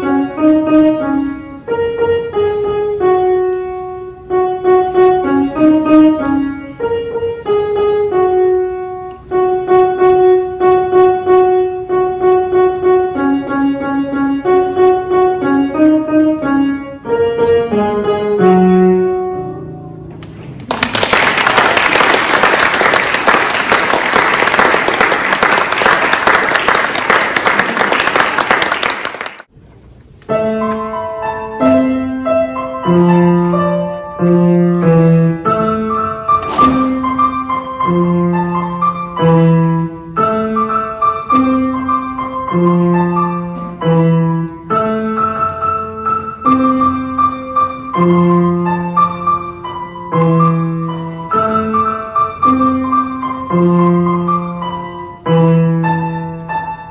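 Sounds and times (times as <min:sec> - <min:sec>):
grand piano melody: 0:00.0 - 0:56.9
audience applause: 0:20.6 - 0:29.5.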